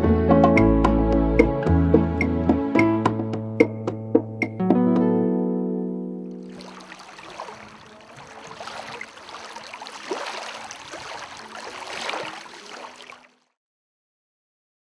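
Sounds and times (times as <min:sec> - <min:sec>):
small waves splashing on shore: 0:06.4 - 0:13.6.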